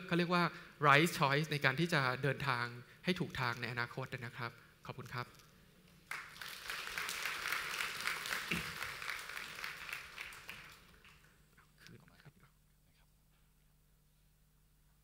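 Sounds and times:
audience applauding: 6.1s - 11.4s.

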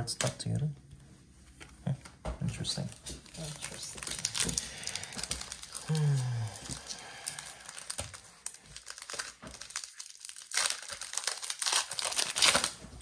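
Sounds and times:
wrapper tearing and crinkling: 2.9s - 13.0s.

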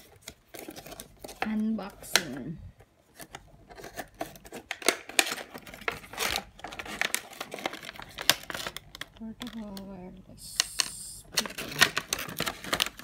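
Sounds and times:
plastic packaging crinkling: 0.0s - 13.0s
cardboard box rustling: 3.1s - 8.8s, 11.4s - 13.0s.

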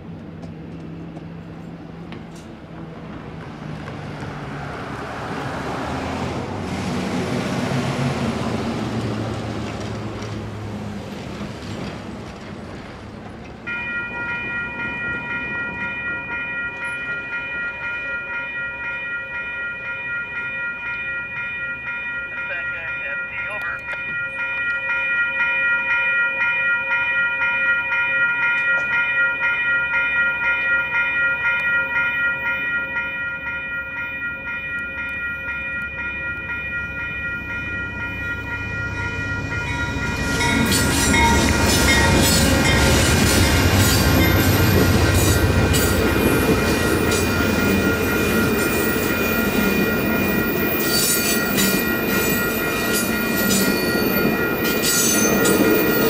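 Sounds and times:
diesel locomotive rumble: 0.0s - 18.4s, 34.7s - 56.0s
train rushing and wheel clatter: 0.0s - 25.2s, 28.4s - 56.0s
electronic crossing bells: 13.7s - 56.0s.

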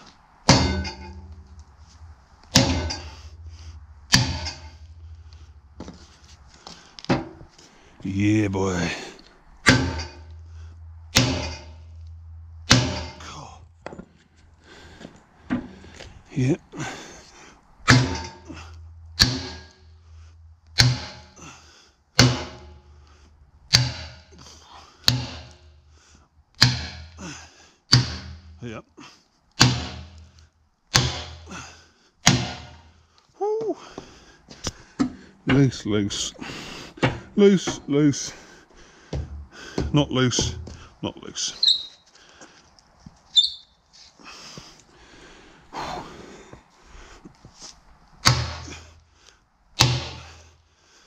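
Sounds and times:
hammer striking steel: 0.5s - 6.0s, 9.6s - 13.5s, 17.9s - 20.0s, 20.7s - 21.5s, 22.2s - 23.0s, 23.7s - 24.4s, 25.0s - 25.7s, 26.6s - 27.2s, 27.9s - 28.6s, 29.6s - 30.2s, 30.9s - 31.5s, 32.2s - 32.9s, 48.2s - 48.8s, 49.8s - 50.3s.

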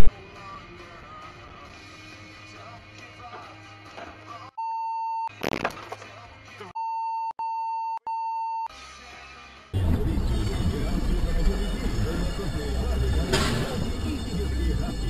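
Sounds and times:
censor bleep tone: 6.8s - 8.7s.

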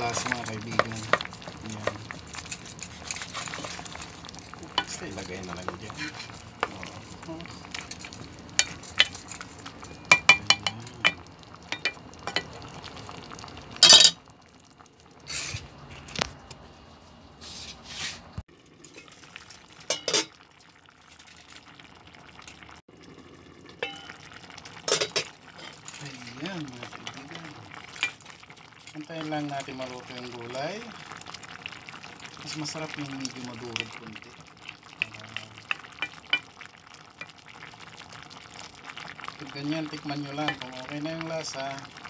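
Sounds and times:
spatula scraping pot: 0.0s - 12.5s
faint sizzle: 0.0s - 42.0s.

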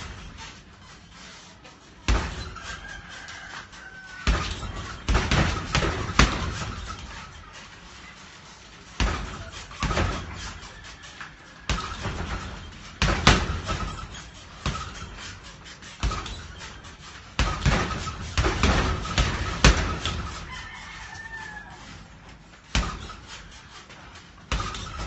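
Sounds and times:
punches thudding on heavy bag: 0.0s - 1.3s, 2.0s - 7.8s, 8.8s - 21.2s, 22.6s - 25.0s
faint rooster crowing: 2.2s - 7.6s, 9.6s - 12.8s, 17.9s - 22.3s.

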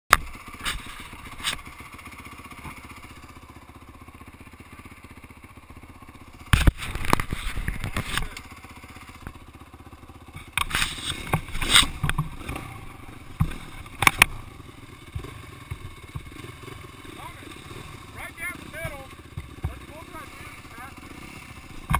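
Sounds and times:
dirt bike engines idling: 0.1s - 21.9s
knocks and scraping rubs: 0.6s - 1.6s, 6.5s - 8.4s, 10.4s - 14.4s, 15.0s - 21.9s.

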